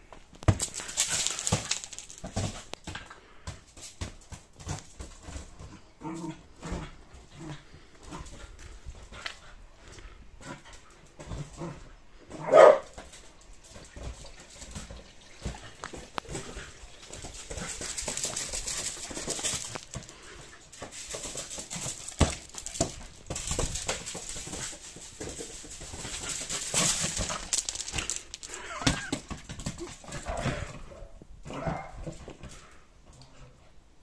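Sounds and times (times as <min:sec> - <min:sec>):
paws scrabbling on gravel: 0:00.3 - 0:02.9, 0:12.5 - 0:30.7
puppy barking: 0:12.4 - 0:12.9.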